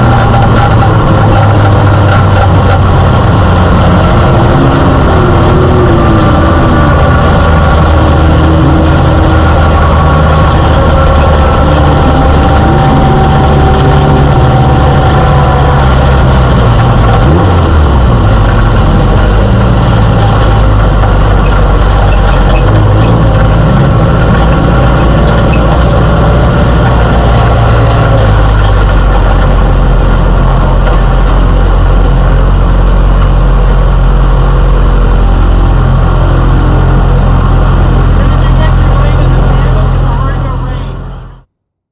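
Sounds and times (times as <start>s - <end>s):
race car engine running: 0.0s - 41.5s
road and wind noise: 0.0s - 41.5s.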